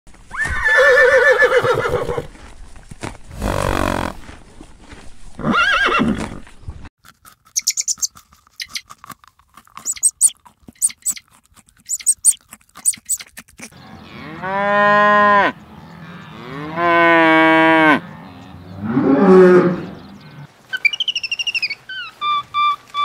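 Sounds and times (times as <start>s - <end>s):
horse whinnying: 0.3s - 2.3s, 3.3s - 4.2s, 5.4s - 6.4s
crisp irregular ticks and clicks: 7.0s - 13.8s.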